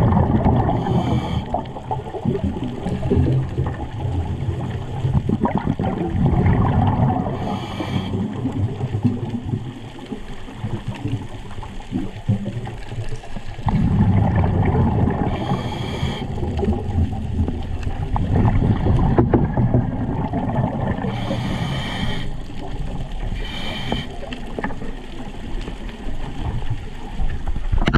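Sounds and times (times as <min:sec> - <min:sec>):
bubbling of exhaled air: 0:00.0 - 0:25.6
diver breathing through regulator: 0:00.6 - 0:01.8, 0:07.3 - 0:08.4, 0:15.1 - 0:16.7, 0:20.9 - 0:22.6, 0:23.2 - 0:24.4.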